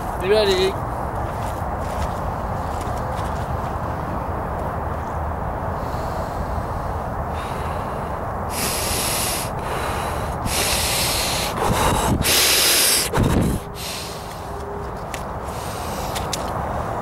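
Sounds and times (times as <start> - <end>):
wind rumble on microphone: 0.0 - 13.8
person breathing hard: 5.7 - 14.6, 15.4 - 17.0.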